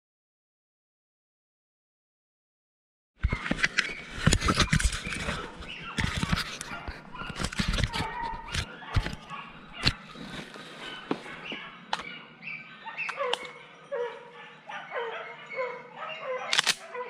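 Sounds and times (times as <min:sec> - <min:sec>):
camera rubbing on jacket: 0:03.2 - 0:11.8
dogs barking: 0:03.9 - 0:17.0.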